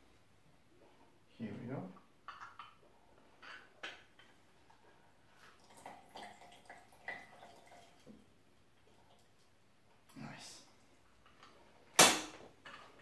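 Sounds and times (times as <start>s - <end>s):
juice dripping: 5.4s - 9.6s.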